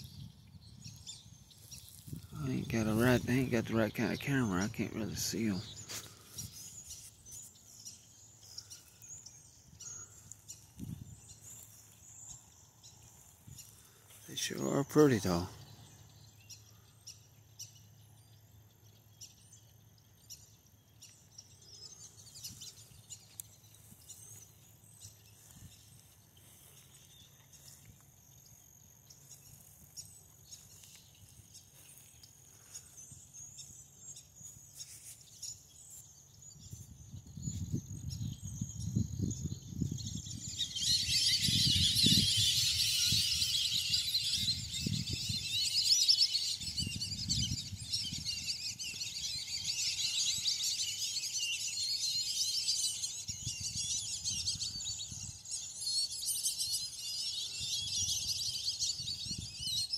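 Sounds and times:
bird chirps: 0.0 - 59.9.

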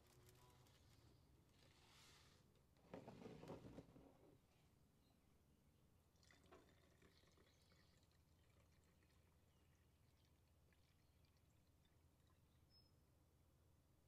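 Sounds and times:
water trickling into plastic: 6.1 - 12.7.

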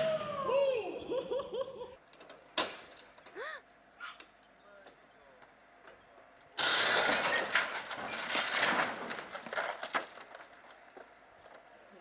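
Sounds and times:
car crashing onto road: 6.6 - 10.4
clattering noise: 6.6 - 11.7.

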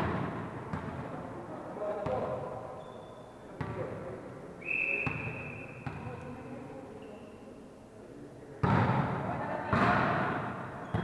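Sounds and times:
volleyball bouncing on floor: 0.0 - 1.0, 5.0 - 6.2, 8.6 - 11.0
referee's whistle: 4.6 - 5.8.

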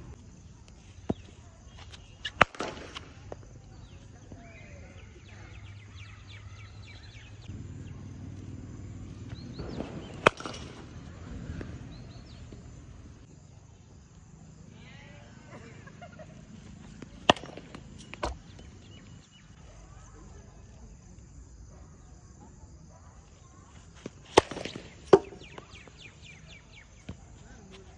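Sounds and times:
birds chirping: 0.2 - 20.6, 23.0 - 27.9
cricket bat striking ball: 1.1 - 4.0, 9.2 - 13.1, 17.0 - 19.0, 24.0 - 27.2.

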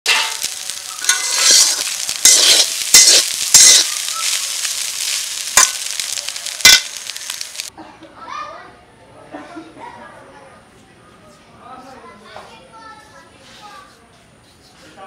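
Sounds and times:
oil sizzling: 0.0 - 7.7
spatula scraping a metal pan: 0.1 - 5.7.

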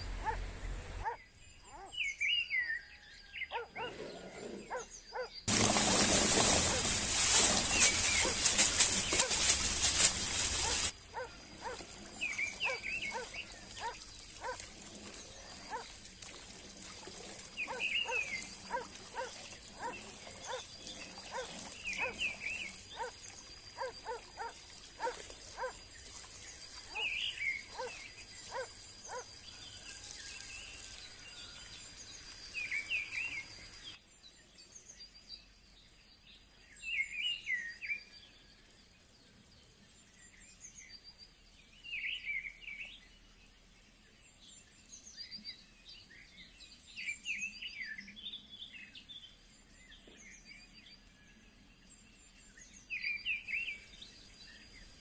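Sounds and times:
loud hissing noise: 5.5 - 11.0.

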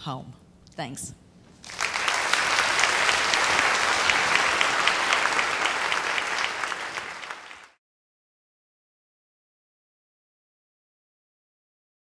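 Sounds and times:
audience applauding: 1.6 - 7.8.

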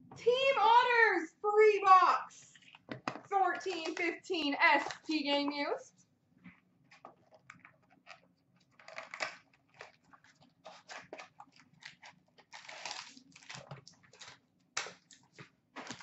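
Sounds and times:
packaging rustling and crinkling: 6.9 - 16.0.

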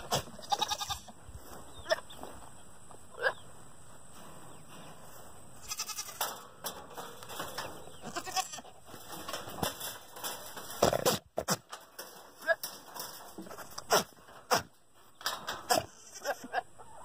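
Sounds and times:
goat calling: 0.0 - 1.2, 1.8 - 2.2, 5.6 - 6.2, 8.0 - 8.8, 15.7 - 17.0.

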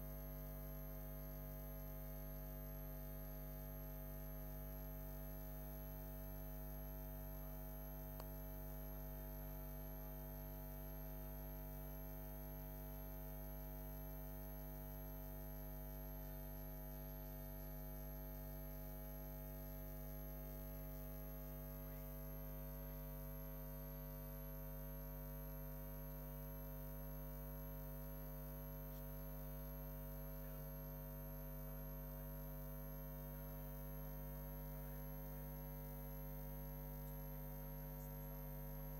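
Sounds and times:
electrical mains hum: 32.6 - 38.9.

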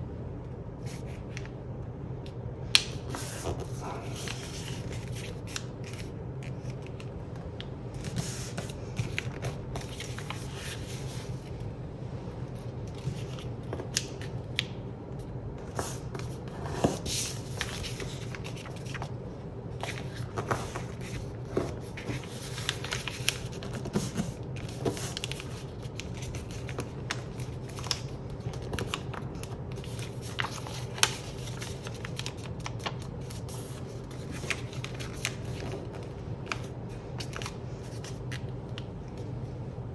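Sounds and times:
paper rustling and crinkling: 3.1 - 7.2, 8.0 - 11.5, 15.6 - 19.2, 19.8 - 38.5
paper crackles: 19.8 - 38.5.

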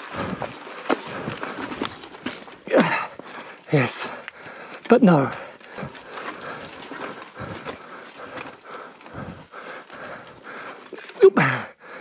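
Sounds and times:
person panting: 0.0 - 1.9, 2.7 - 12.0
bike knocking and rattling on rock: 0.0 - 11.7.

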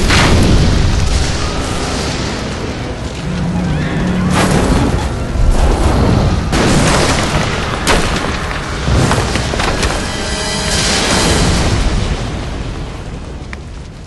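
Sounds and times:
background music: 0.0 - 13.5
deep booming explosions: 0.0 - 13.5
sharp crack: 6.4 - 12.3.

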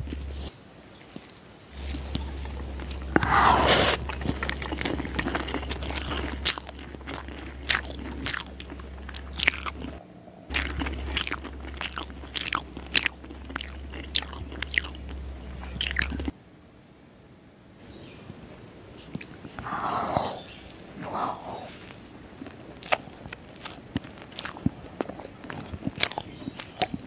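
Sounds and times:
chewing mouth clicks and smacks: 0.0 - 3.3, 4.0 - 16.3, 19.1 - 21.5, 22.4 - 27.0
steady low hum: 0.0 - 27.0.

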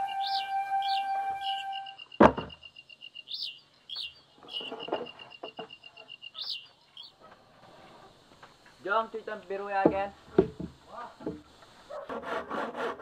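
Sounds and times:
bird chirping: 0.0 - 8.8
bamboo poles knocking: 2.2 - 2.6, 9.7 - 11.5.

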